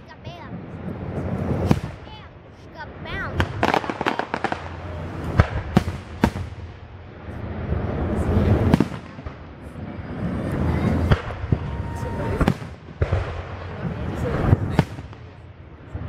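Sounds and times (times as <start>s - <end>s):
fireworks bursting: 0.0s - 16.0s.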